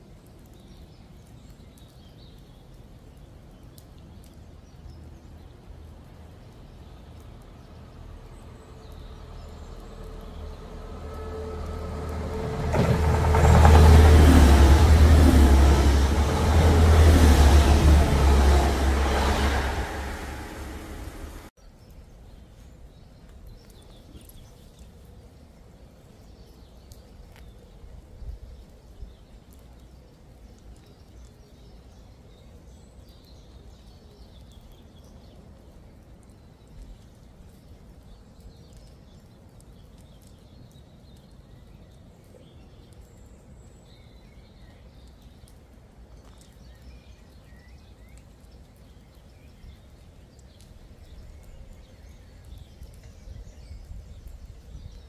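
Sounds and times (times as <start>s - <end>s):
low outdoor rumble: 4.6s - 21.5s
loud knocks: 12.4s - 16.3s.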